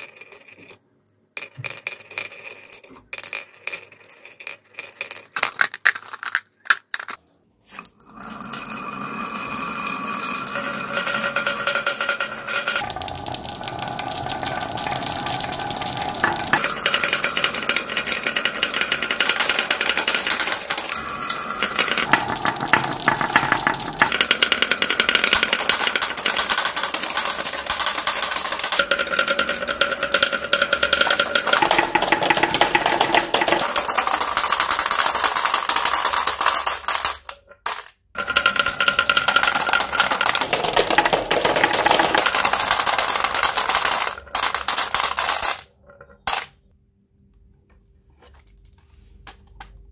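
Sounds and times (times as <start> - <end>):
glass marbles rolling on wooden tracks: 0.0 - 7.2, 8.2 - 46.5
marbles clicking together: 9.9 - 46.5.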